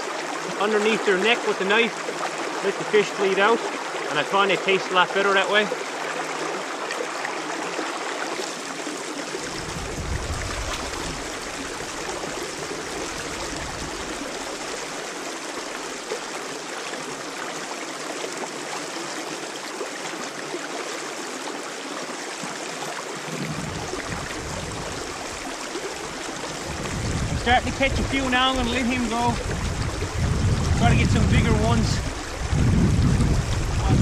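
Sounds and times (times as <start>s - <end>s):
stream running over rocks: 0.0s - 34.0s
low rumble: 9.4s - 14.7s, 26.6s - 28.7s, 29.4s - 34.0s.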